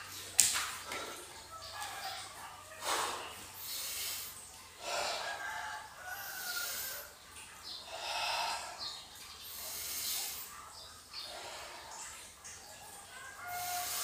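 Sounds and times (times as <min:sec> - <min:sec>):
man breathing deeply: 0:02.8 - 0:05.4.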